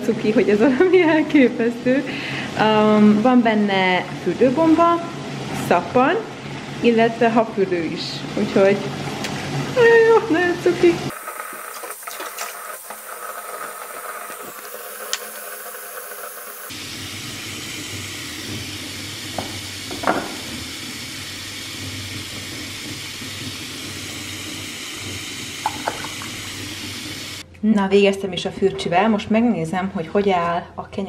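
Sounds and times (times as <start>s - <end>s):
bath bomb fizzing: 11.1s - 27.4s
tap water running into bath: 11.1s - 27.4s.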